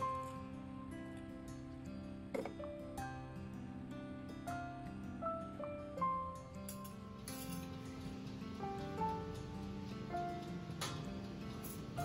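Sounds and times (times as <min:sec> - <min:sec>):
soft instrumental music: 0:00.0 - 0:12.0.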